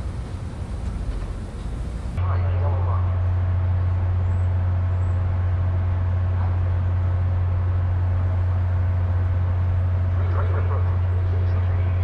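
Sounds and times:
faint steady whine: 0:00.0 - 0:03.1
diesel locomotive idling: 0:00.0 - 0:12.0.

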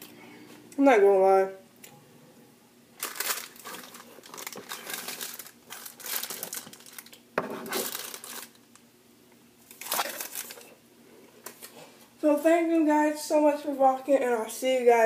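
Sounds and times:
parchment paper crinkling: 0:03.0 - 0:08.6, 0:09.7 - 0:10.8.

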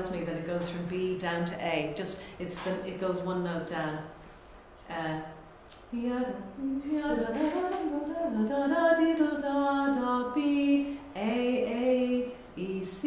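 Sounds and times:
woman singing held notes: 0:05.9 - 0:13.0.

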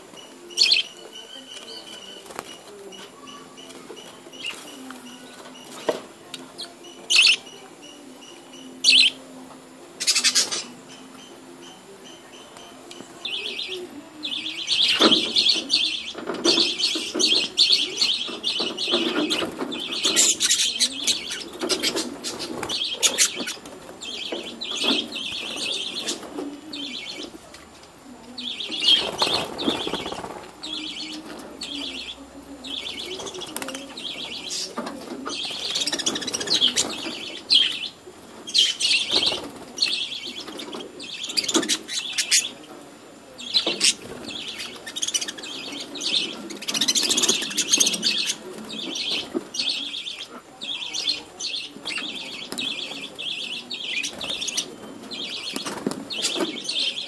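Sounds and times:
wing flutters: 0:28.7 - 0:31.0.

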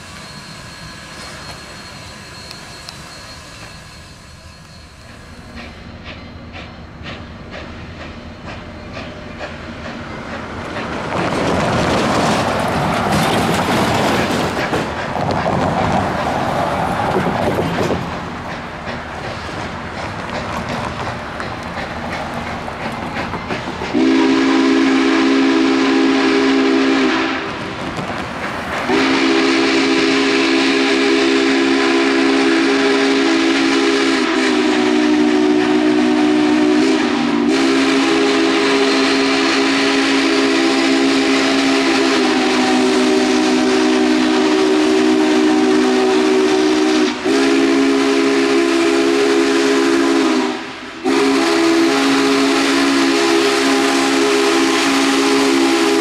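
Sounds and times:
chime steam whistle blasts: 0:00.0 - 0:07.1, 0:23.9 - 0:27.5, 0:28.9 - 0:56.0
steam locomotive and train running: 0:00.0 - 0:56.0.

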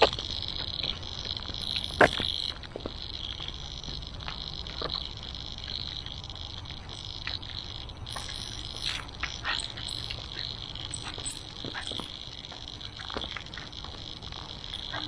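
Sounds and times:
high-pitched chirring chorus: 0:00.0 - 0:15.0
footsteps on gravel: 0:00.1 - 0:03.1.

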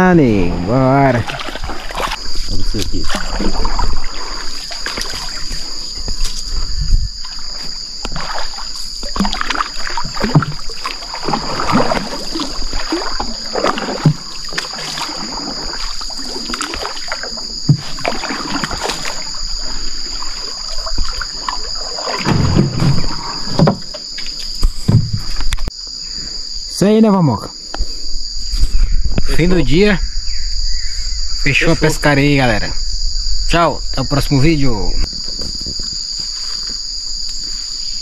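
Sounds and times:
high insect drone: 0:00.0 - 0:38.0
water splashing around hull: 0:00.4 - 0:25.8.

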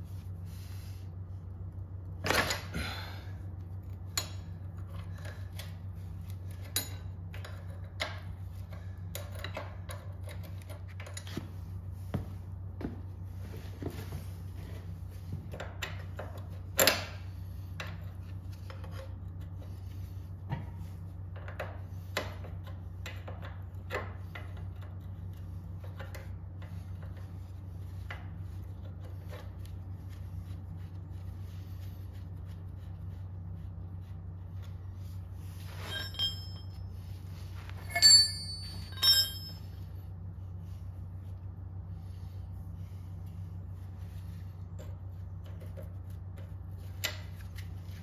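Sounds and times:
steady low hum: 0:00.0 - 0:48.0
loud ringing metal clinks: 0:35.8 - 0:36.9, 0:37.8 - 0:39.8.

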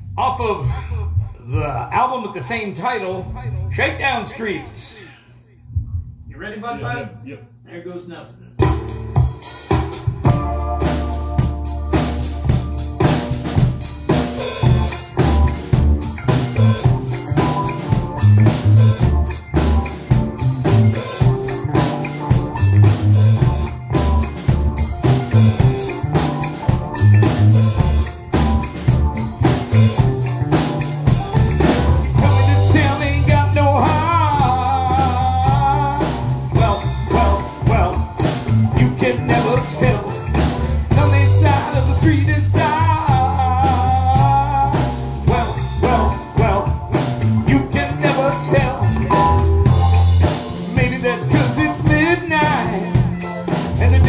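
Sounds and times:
drum kit playing rock groove: 0:08.5 - 0:54.0
walking bass line: 0:08.6 - 0:54.0.

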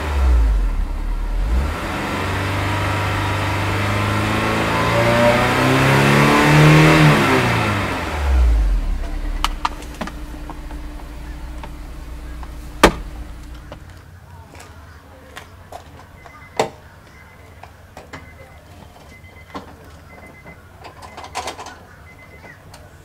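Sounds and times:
car engine revving: 0:00.0 - 0:13.9.

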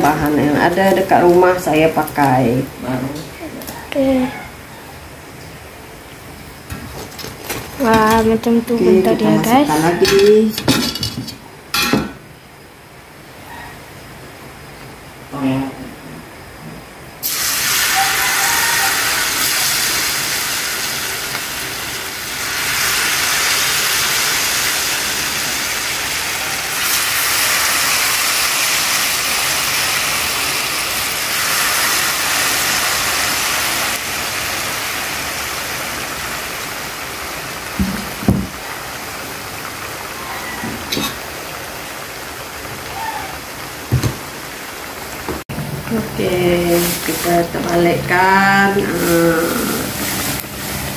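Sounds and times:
batter sizzling in hot oil: 0:00.0 - 0:02.7, 0:17.2 - 0:45.2, 0:45.9 - 0:50.9.

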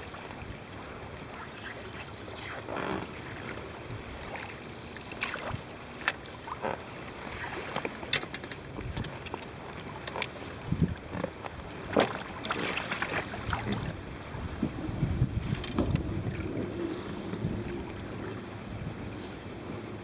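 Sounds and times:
wind and water noise: 0:00.0 - 0:20.0
fishing tackle clicks and knocks: 0:06.0 - 0:06.2, 0:07.7 - 0:12.1.

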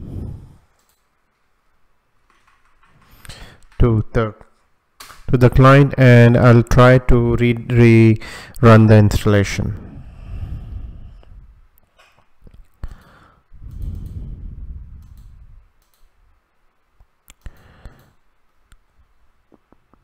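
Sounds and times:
computer mouse clicks: 0:00.7 - 0:01.1, 0:13.7 - 0:14.2, 0:15.0 - 0:16.1, 0:17.3 - 0:18.8
breathy noise on microphone: 0:09.7 - 0:15.7.

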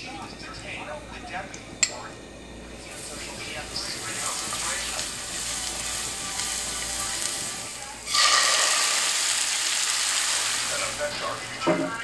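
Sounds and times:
garlic sizzling in hot oil: 0:02.8 - 0:11.6.

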